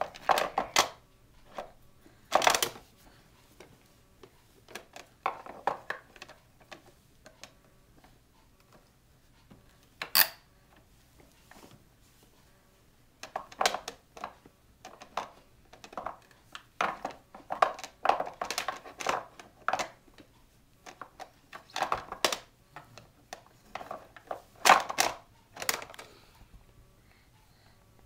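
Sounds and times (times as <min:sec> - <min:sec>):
toys knocking and clattering: 0:13.2 - 0:20.0, 0:20.9 - 0:26.0.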